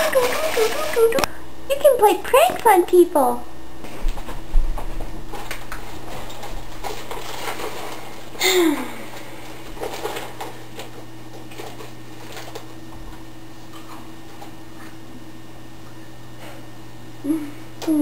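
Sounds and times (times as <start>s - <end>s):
steady low hum: 0.0s - 18.0s
snack bag crinkling: 5.3s - 8.4s, 9.1s - 12.8s.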